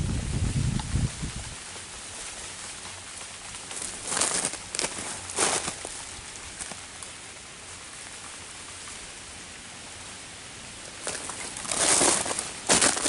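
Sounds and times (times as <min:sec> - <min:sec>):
freezing rain on leaves: 0:00.0 - 0:13.0
footstep crunching on frozen leaves: 0:02.2 - 0:07.1, 0:10.9 - 0:13.0.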